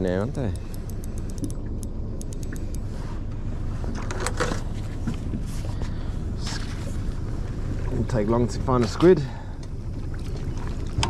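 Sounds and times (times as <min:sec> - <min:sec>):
spinning reel ticking: 0:00.0 - 0:01.6
boat noise: 0:00.0 - 0:11.0
wind rumble: 0:00.0 - 0:11.0.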